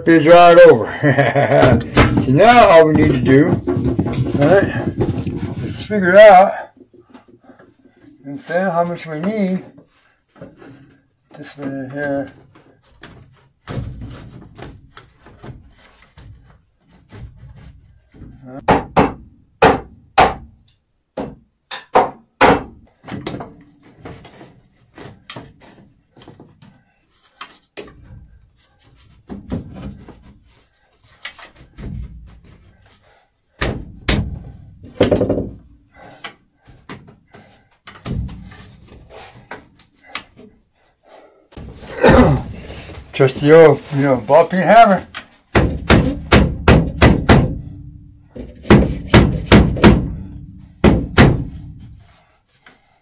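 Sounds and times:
plastic pipe rubbing: 1.2 - 6.1, 9.7 - 18.5, 22.9 - 40.6, 41.6 - 53.0
plastic pipe hollow clacks: 33.6 - 40.5.

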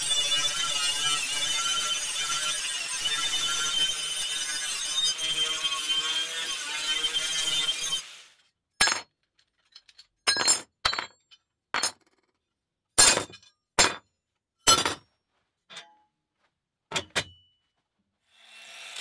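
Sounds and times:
angle grinder stripping rust: 0.0 - 8.4.

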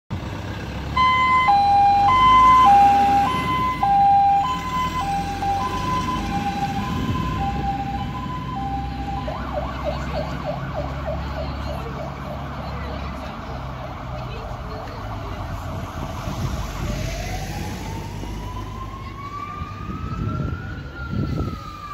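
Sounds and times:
two-tone siren: 1.0 - 12.6, 17.1 - 21.9
rising yelp siren: 1.0 - 12.7, 13.6 - 21.9.

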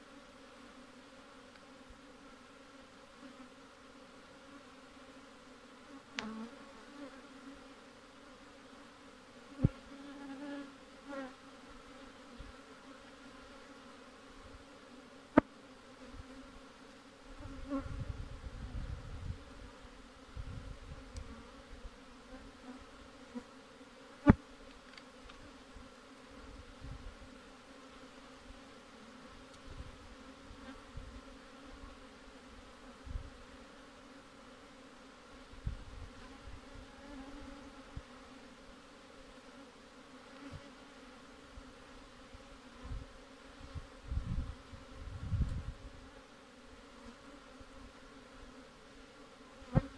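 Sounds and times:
honeybees buzzing: 0.0 - 49.9.

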